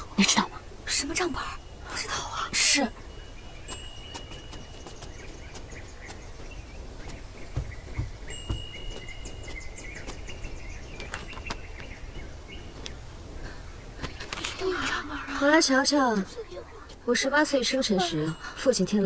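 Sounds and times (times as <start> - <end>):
birds chirping: 0.0 - 19.0
steady background hiss: 0.0 - 19.0
soft low thumps: 3.4 - 13.1.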